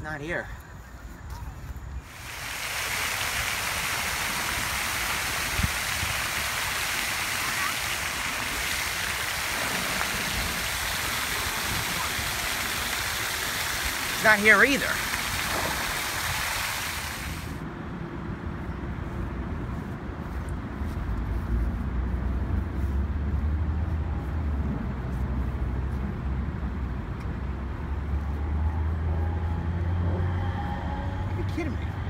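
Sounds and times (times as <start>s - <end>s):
fountain jets hissing: 2.0s - 17.6s.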